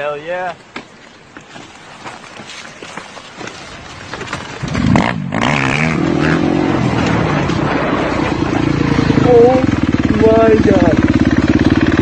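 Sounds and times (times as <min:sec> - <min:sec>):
dirt bike engine revving: 0:04.4 - 0:12.0.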